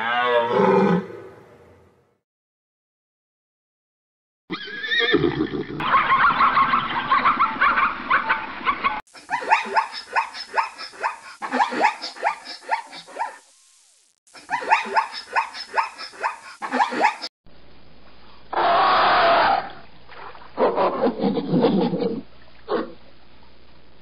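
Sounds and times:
zebra barking yelps: 14.5 - 17.3.

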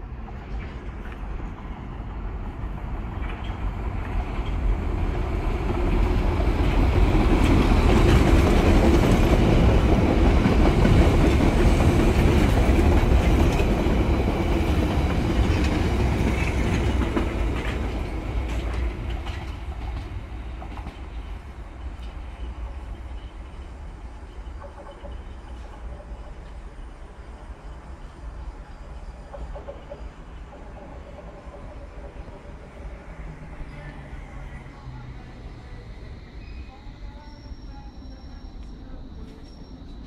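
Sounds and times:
train wheels clattering over rail joints: 5.6 - 21.4, 29.2 - 33.3.

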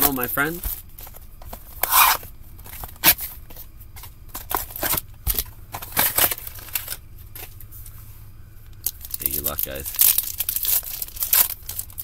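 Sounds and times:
cardboard and wrappers tearing: 1.8 - 2.2, 9.0 - 12.0.

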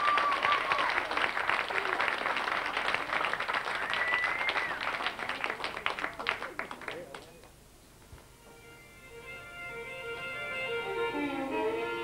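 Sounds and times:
audience applauding: 0.0 - 7.5
whistles: 3.7 - 5.0.

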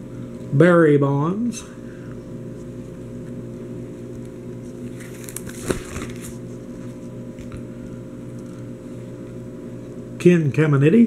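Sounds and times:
low electrical hum: 0.0 - 11.0
plastic binder page turning: 4.0 - 7.6.

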